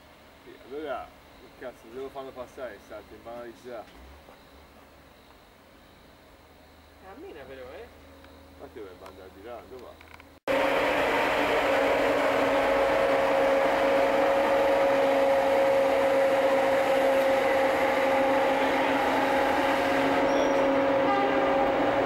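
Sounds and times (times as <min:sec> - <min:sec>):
steady machine hum: 0:10.5 - 0:22.0.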